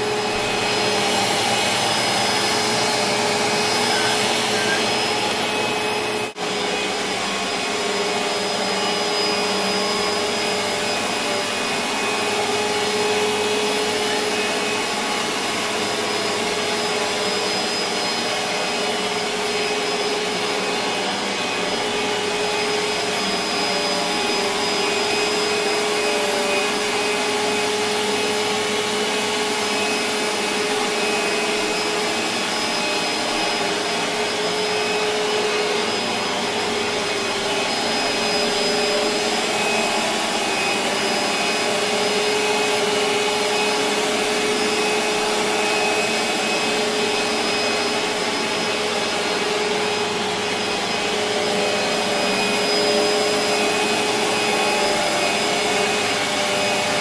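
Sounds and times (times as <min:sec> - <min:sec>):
upright vacuum cleaner running: 0:00.0 - 0:57.0.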